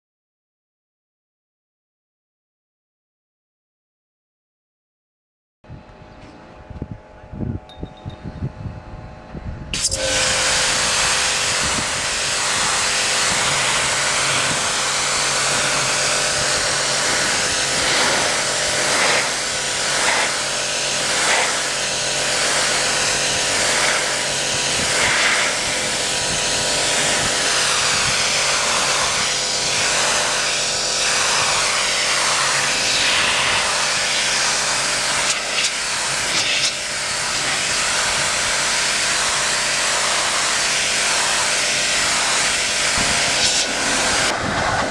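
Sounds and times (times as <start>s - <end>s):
washer motor hum: 5.7s - 44.9s
pressure washer jet hissing: 9.7s - 44.9s.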